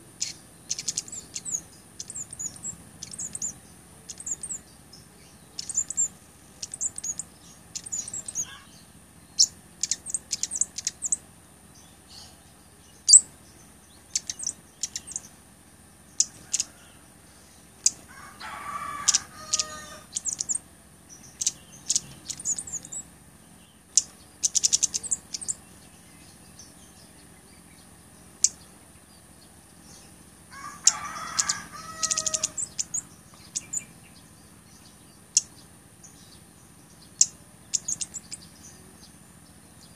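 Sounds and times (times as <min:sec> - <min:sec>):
bird chipping notes: 0:00.0 - 0:11.2, 0:13.0 - 0:15.3, 0:17.8 - 0:25.6, 0:30.8 - 0:33.9
lower bird call: 0:00.0 - 0:13.3, 0:13.9 - 0:15.3, 0:16.1 - 0:27.8, 0:29.8 - 0:39.9.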